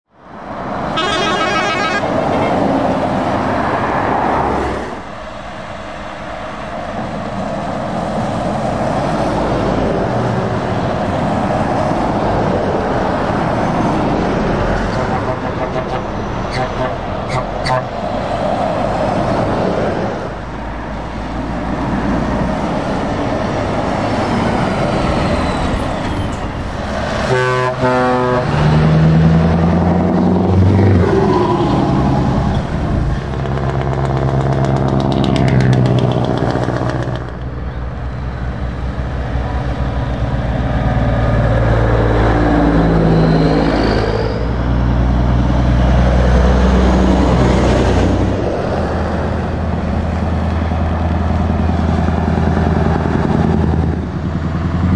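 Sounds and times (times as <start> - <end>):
diesel trucks passing: 0.1 - 54.9
truck horn blast: 0.9 - 2.8, 14.9 - 18.0, 27.2 - 28.8.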